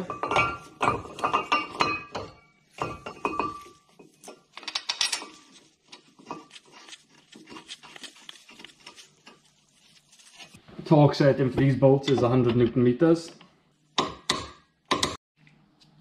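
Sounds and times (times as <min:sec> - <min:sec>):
metal parts clinking: 0:04.6 - 0:05.4.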